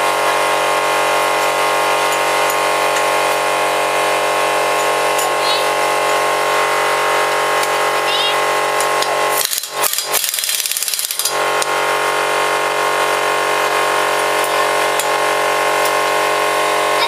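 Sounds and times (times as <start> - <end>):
steady hum: 0.0 - 17.0
impact wrench hammering: 1.2 - 6.3, 7.5 - 8.0, 8.7 - 16.3.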